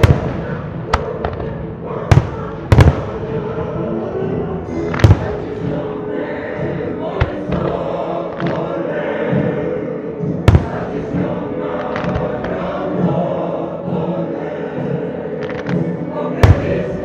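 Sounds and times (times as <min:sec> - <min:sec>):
fireworks bursting: 0:00.0 - 0:03.4, 0:04.9 - 0:05.6, 0:07.1 - 0:07.8, 0:10.4 - 0:12.7, 0:16.4 - 0:17.0
choir singing held notes: 0:00.0 - 0:17.0.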